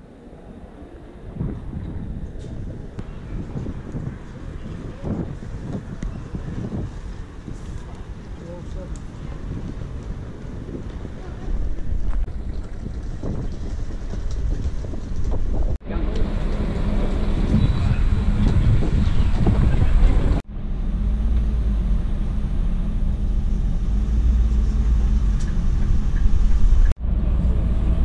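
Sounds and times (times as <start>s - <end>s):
passengers chattering: 11.0s - 12.0s
coach diesel engine drone: 15.8s - 28.0s.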